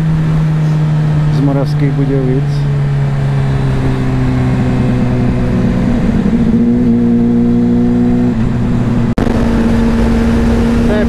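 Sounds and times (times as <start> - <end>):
motorcycle engine running: 0.0 - 11.0
wind noise: 2.9 - 11.0.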